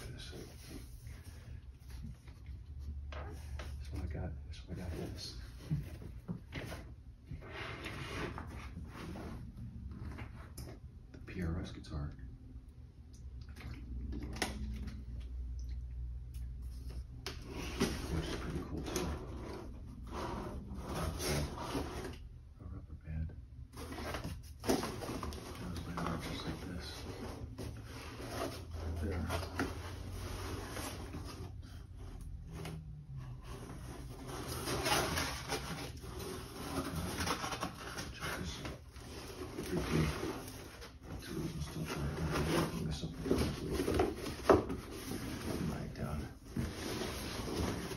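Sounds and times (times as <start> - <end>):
cardboard and plastic rustling: 16.6 - 22.2, 23.7 - 47.9.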